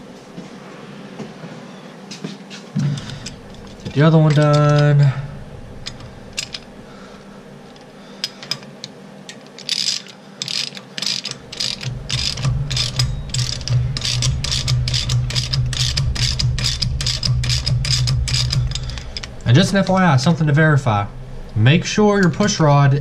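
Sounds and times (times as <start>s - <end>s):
steady low hum: 0.0s - 23.0s
socket ratchet clicking: 5.8s - 6.7s, 7.8s - 19.9s.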